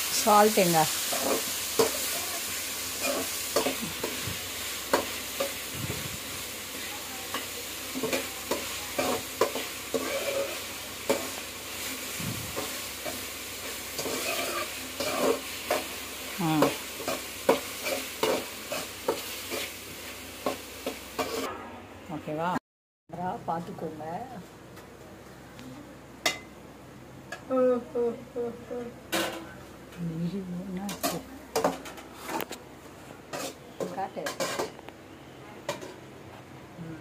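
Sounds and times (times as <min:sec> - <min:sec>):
vegetables sizzling in oil: 0:00.0 - 0:21.5
metal spatula scraping a pan: 0:02.9 - 0:04.2, 0:08.0 - 0:11.9, 0:14.0 - 0:15.8, 0:21.2 - 0:21.6, 0:33.3 - 0:34.8.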